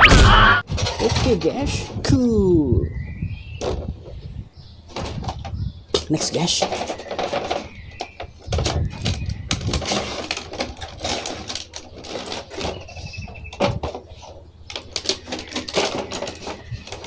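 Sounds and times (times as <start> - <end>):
plastic packaging crinkling: 8.5 - 17.0.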